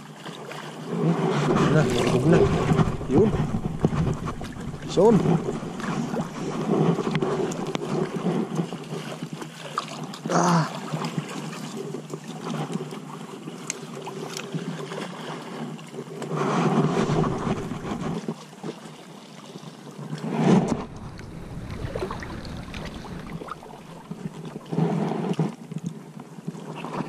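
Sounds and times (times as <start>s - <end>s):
lake water sloshing and splashing: 0.0s - 27.0s
wind noise: 1.2s - 8.8s, 16.5s - 18.3s, 20.3s - 24.7s.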